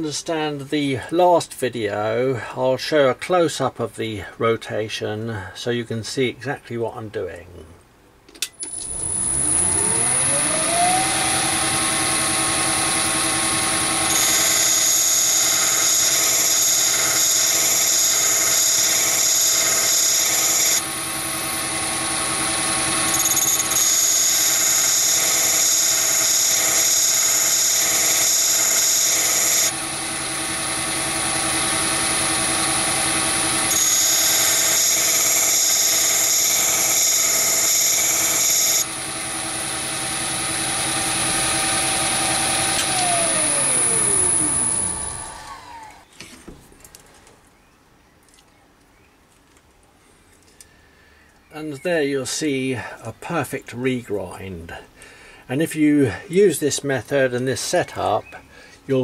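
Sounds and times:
drill tip grinding hiss: 0:08.6 - 0:46.0
lathe spindle whine: 0:08.6 - 0:46.1.

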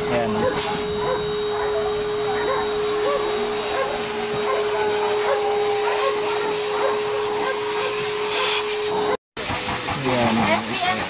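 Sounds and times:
pet blower dryer whine: 0:00.0 - 0:11.0.

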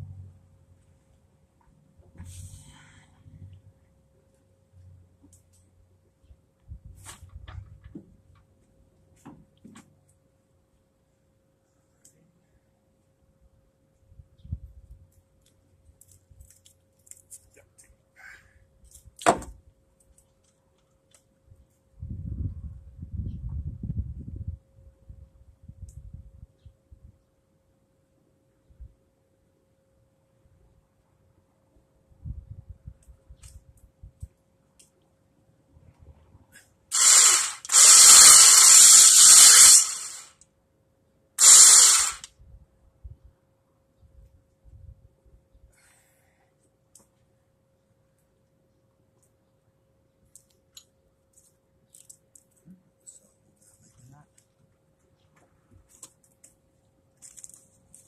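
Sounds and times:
electric winch running: 0:36.9 - 0:40.3, 0:41.4 - 0:42.3.

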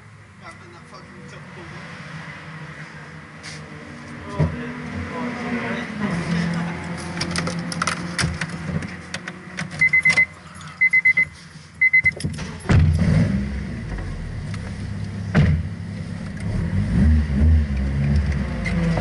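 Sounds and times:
car warning chime beeps: 0:09.8 - 0:12.2
car engine starting and idling: 0:11.8 - 0:19.0.

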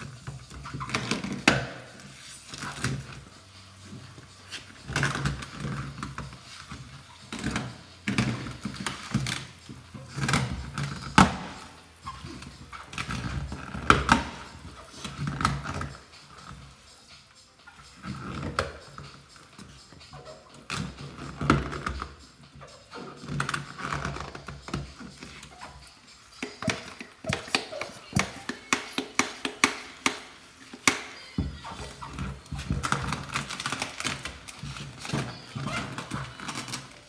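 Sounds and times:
film peeling crackling: 0:17.6 - 0:37.0.

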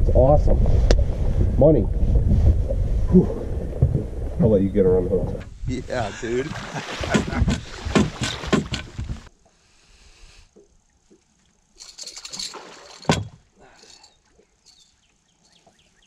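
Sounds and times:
water splashing and sloshing: 0:05.4 - 0:09.4, 0:10.5 - 0:16.0.

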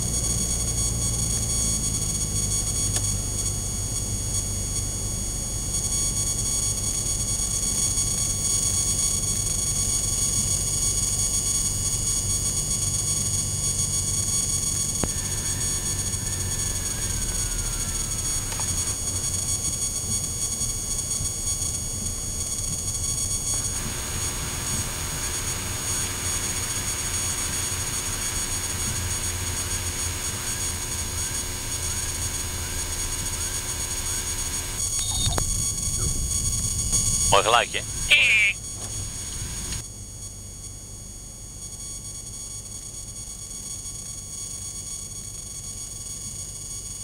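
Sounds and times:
thin high whine: 0:23.5 - 0:39.8.

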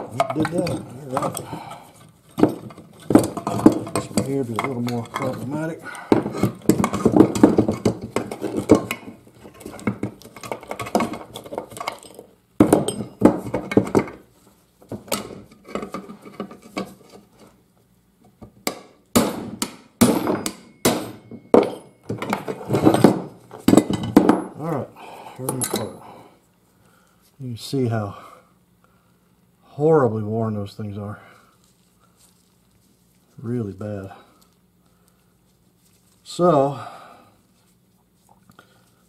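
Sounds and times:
metal parts clanking: 0:00.0 - 0:14.2, 0:20.2 - 0:24.6
sharp metal knocks: 0:18.6 - 0:24.6.

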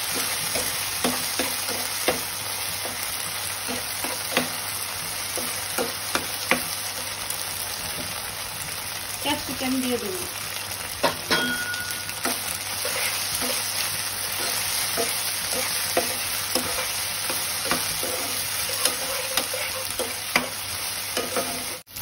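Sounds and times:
food sizzling in oil: 0:00.0 - 0:22.0
spatula knocking and scraping pan: 0:00.1 - 0:03.0, 0:03.6 - 0:04.6, 0:05.3 - 0:06.8, 0:11.0 - 0:21.8.

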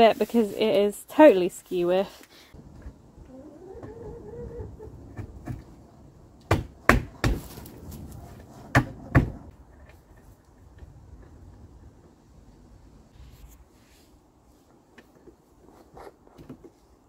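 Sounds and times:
sharp wooden knocks: 0:06.5 - 0:07.6, 0:08.7 - 0:09.5.

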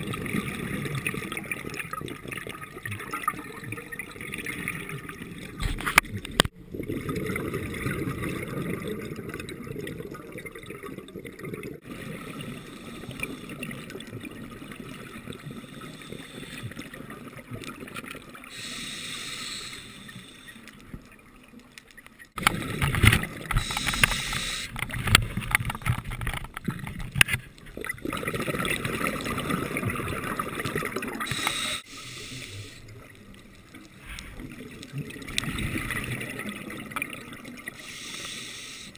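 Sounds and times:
exhaled bubbles underwater: 0:00.0 - 0:38.9
hissing regulator inhalations: 0:12.4 - 0:13.6, 0:15.4 - 0:16.8, 0:18.5 - 0:20.8, 0:23.5 - 0:24.8, 0:31.3 - 0:33.0, 0:37.8 - 0:38.9.

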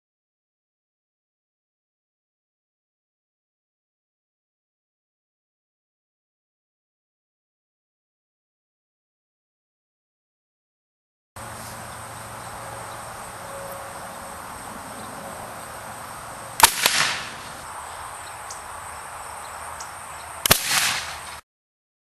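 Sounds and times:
insects: 0:11.4 - 0:21.4
spud gun bangs: 0:16.6 - 0:17.5, 0:20.5 - 0:21.2.

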